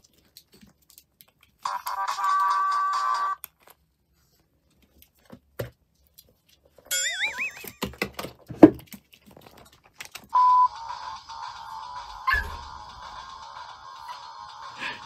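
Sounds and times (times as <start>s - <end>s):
knocks and thumps: 7.8s - 8.9s.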